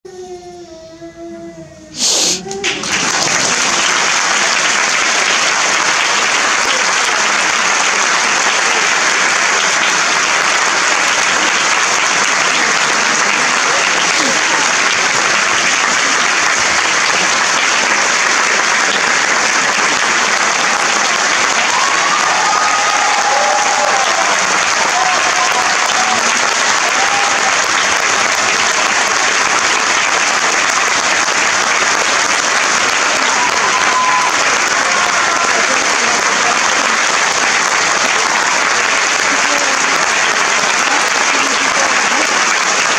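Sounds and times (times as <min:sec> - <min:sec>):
audience applauding: 0:02.0 - 0:42.9.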